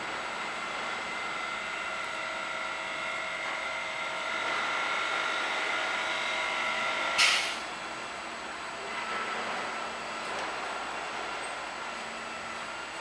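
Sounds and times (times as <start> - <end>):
tram electric drive whine: 0.0 - 13.0
tram rolling noise: 0.0 - 13.0
loud hiss: 7.2 - 7.7.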